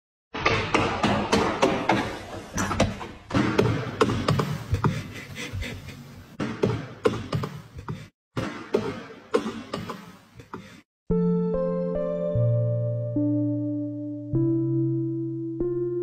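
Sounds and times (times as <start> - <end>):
piano-like music: 11.1 - 16.0.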